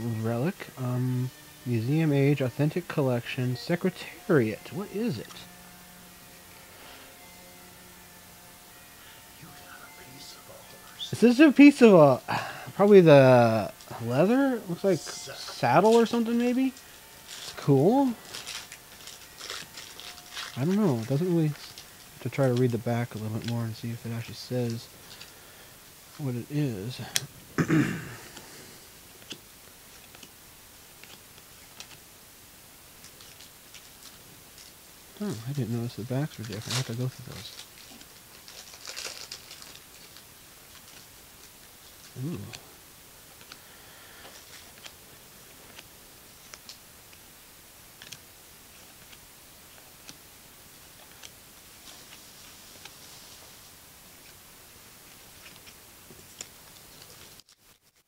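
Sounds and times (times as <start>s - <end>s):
faint steady hiss: 0.0s - 58.0s
trading cards flipped by hand: 43.4s - 43.6s.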